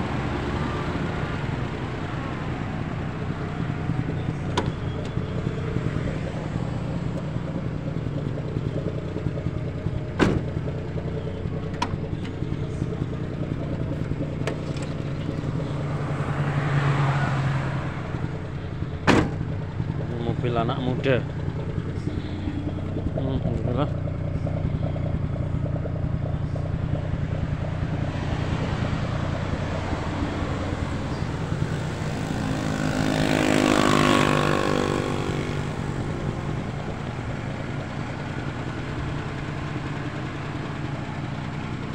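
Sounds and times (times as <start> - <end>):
car engine idling: 0.0 - 41.9.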